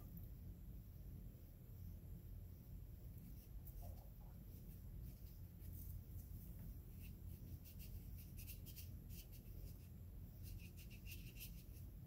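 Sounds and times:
needle scratching paper: 6.9s - 11.8s.

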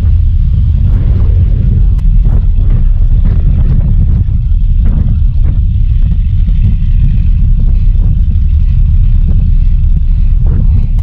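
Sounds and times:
ferry running rumble: 0.0s - 11.0s
wind on microphone: 0.0s - 11.0s.

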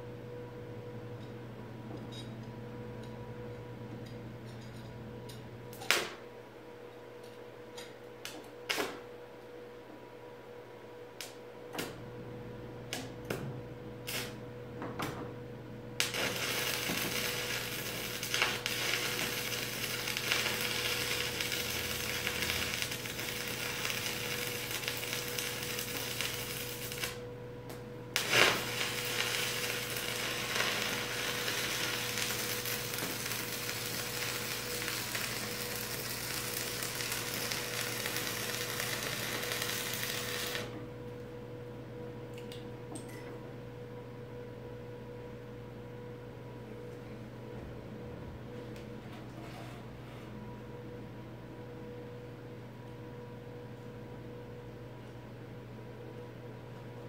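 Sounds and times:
steady low hum: 0.0s - 57.0s
welding arc crackling sizzle: 14.0s - 14.4s, 16.0s - 40.9s.

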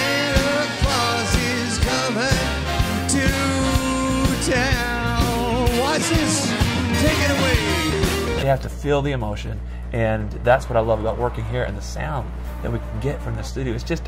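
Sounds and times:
man singing: 0.0s - 8.1s
big band playing: 0.0s - 8.4s.

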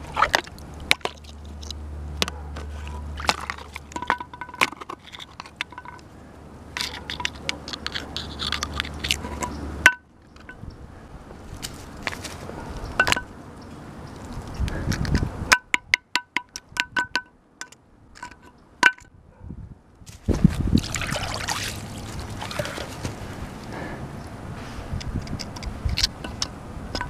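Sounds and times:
metal scraping on concrete: 6.8s - 9.7s
sharp ringing metal taps: 15.5s - 19.2s.

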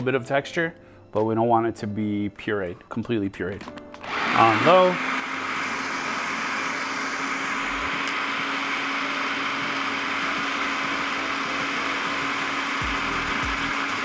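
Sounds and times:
food processor motor running: 4.0s - 14.0s.

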